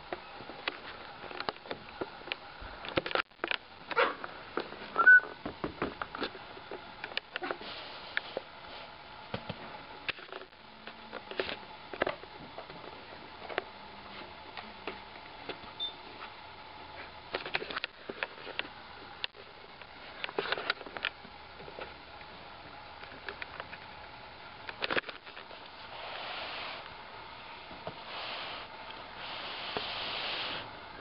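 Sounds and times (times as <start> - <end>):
high squeak: 5.0 - 5.4.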